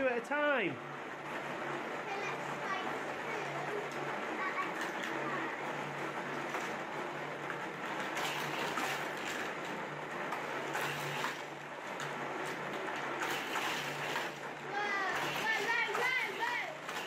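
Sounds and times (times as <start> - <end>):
motorized booster humming: 0.0 - 17.0
toy cars rattling on plastic track: 10.3 - 17.0.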